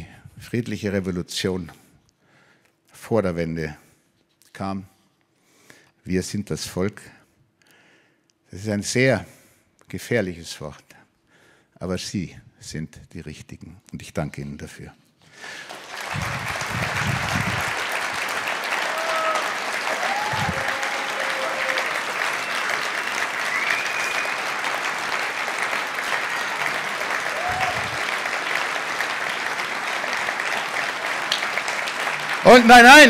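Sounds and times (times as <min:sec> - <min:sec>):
crowd clapping: 0:15.4 - 0:33.0.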